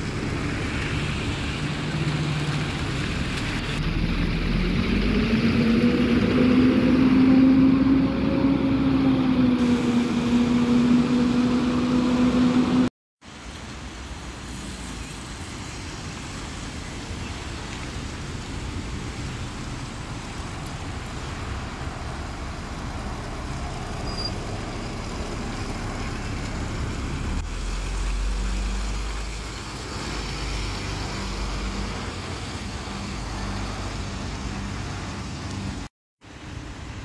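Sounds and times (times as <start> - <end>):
bus engine rumble: 0.0 - 37.0
tyres hissing on wet road: 0.0 - 37.0.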